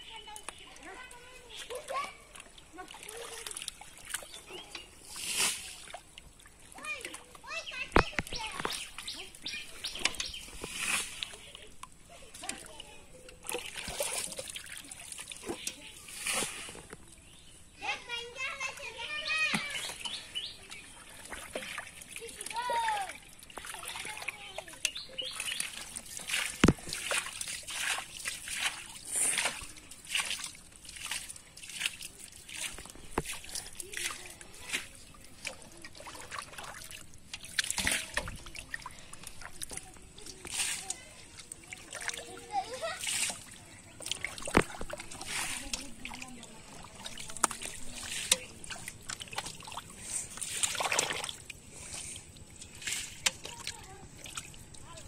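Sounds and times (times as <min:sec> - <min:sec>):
splashing in muddy water: 0:00.0 - 0:17.5, 0:18.7 - 0:55.0
mud popping: 0:07.5 - 0:12.6, 0:24.9 - 0:35.8, 0:43.0 - 0:54.9.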